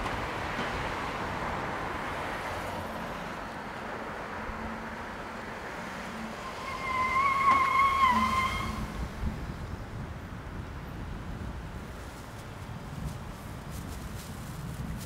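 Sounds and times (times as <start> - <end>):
city traffic passing: 0.0 - 15.0
high wavering squeal: 6.0 - 9.0.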